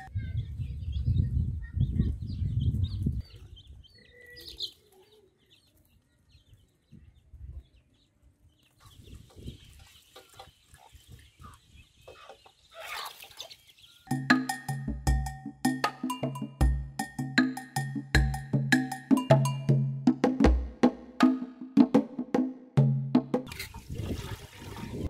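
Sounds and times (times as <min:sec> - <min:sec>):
chicks peeping: 0:00.0 - 0:14.1
chickens clucking: 0:07.7 - 0:14.1.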